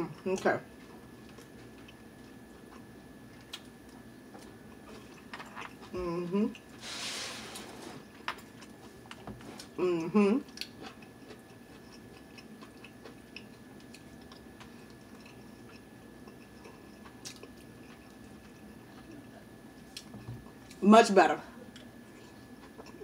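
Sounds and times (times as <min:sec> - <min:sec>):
person chewing food: 0:00.8 - 0:06.8, 0:10.4 - 0:20.8, 0:21.7 - 0:23.0.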